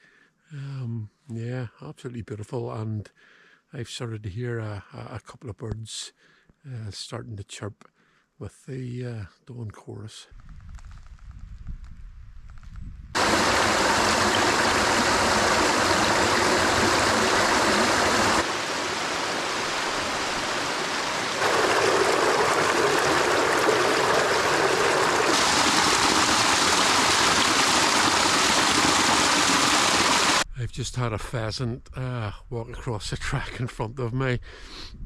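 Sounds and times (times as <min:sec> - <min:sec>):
stream splashing over rocks: 0:13.2 - 0:30.4.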